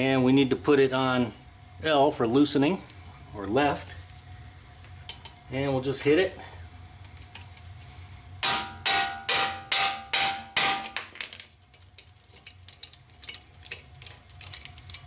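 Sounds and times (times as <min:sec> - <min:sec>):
hammer striking metal driver: 0:08.4 - 0:11.0.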